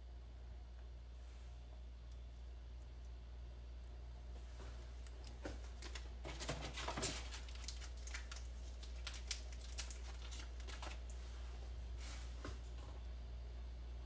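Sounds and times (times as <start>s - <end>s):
steady low hum: 0.0s - 14.0s
plastic packaging crinkling: 5.1s - 11.2s.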